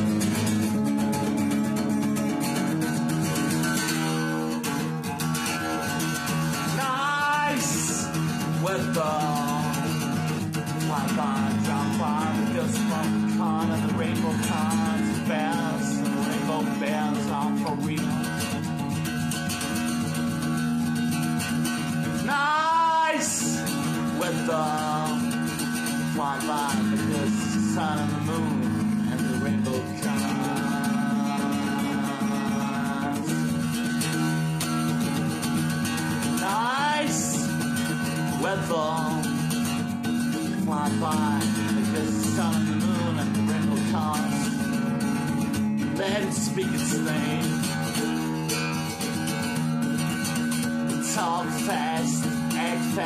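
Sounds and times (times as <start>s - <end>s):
acoustic guitar strumming: 0.0s - 53.0s
person singing wordless notes: 6.3s - 18.8s, 22.2s - 33.7s, 36.2s - 39.6s, 40.2s - 44.8s, 45.8s - 47.9s, 50.9s - 53.0s.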